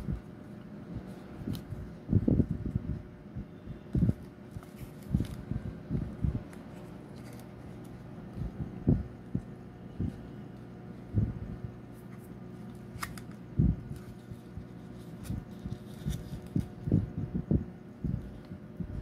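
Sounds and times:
faint steady hum: 0:00.0 - 0:19.0
soft low thumps: 0:02.1 - 0:04.2, 0:05.1 - 0:06.5, 0:08.3 - 0:10.4, 0:11.1 - 0:11.8, 0:13.5 - 0:14.0, 0:15.3 - 0:19.0
paper folding and creasing: 0:04.0 - 0:05.5, 0:06.4 - 0:08.6, 0:11.9 - 0:16.9.

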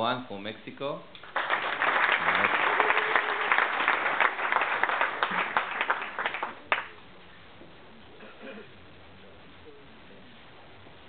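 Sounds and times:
audience applauding: 0:01.2 - 0:06.9.

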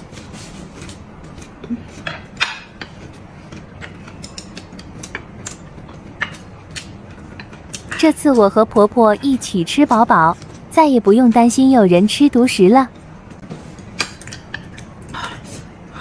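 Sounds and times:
chopsticks tapping ceramic plates: 0:01.4 - 0:10.6.

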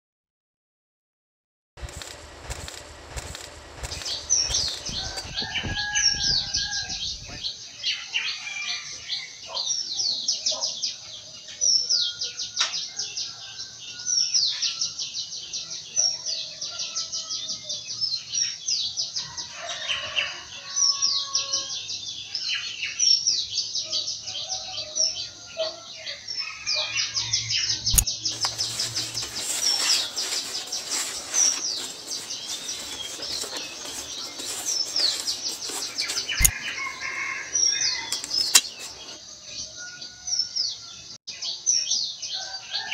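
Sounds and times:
sharp clicks: 0:01.8 - 0:05.3, 0:27.9 - 0:29.8, 0:33.2 - 0:36.8, 0:38.1 - 0:39.0
small birds chirping: 0:01.8 - 0:42.9
steady rustling hiss: 0:28.3 - 0:36.7.

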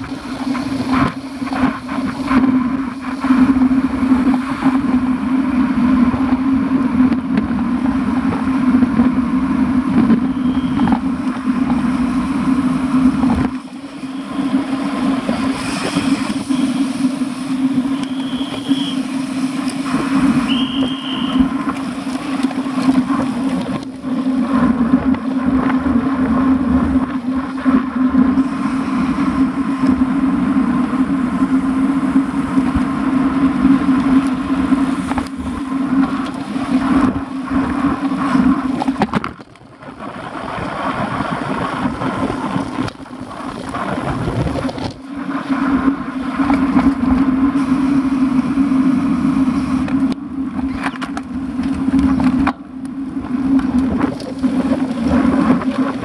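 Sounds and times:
constant low drone: 0:00.0 - 0:56.0
road and wind noise: 0:00.0 - 0:56.0
short high squeaks: 0:18.0 - 0:19.0.

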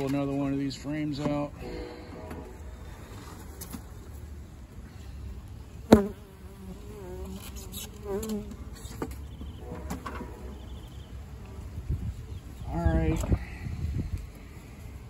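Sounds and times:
honeybees buzzing: 0:04.5 - 0:12.4.

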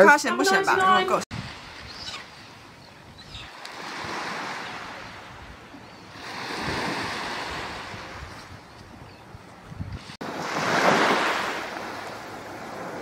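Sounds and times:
waves breaking on sandy beach: 0:03.5 - 0:08.5, 0:10.0 - 0:13.0.

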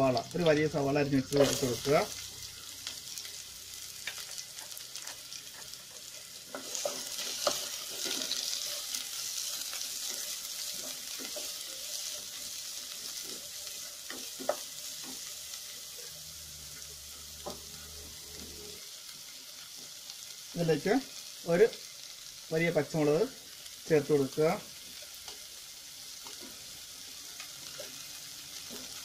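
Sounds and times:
onion sizzling in hot oil: 0:00.0 - 0:29.0.

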